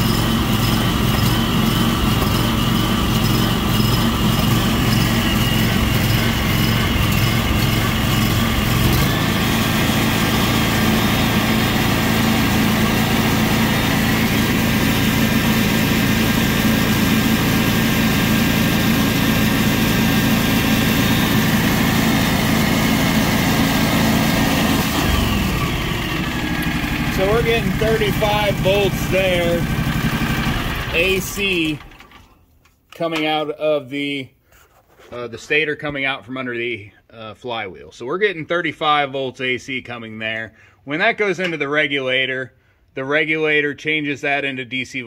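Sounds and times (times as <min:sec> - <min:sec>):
lawn tractor engine running: 0:00.0 - 0:32.4.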